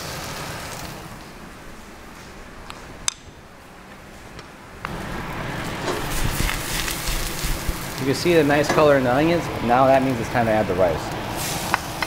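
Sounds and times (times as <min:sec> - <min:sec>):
onions sizzling in oil: 0:04.9 - 0:08.7, 0:11.2 - 0:12.0.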